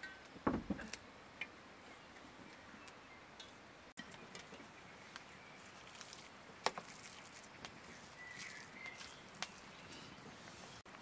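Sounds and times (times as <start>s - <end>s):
wooden spoon stirring in metal pot: 3.4s - 10.8s.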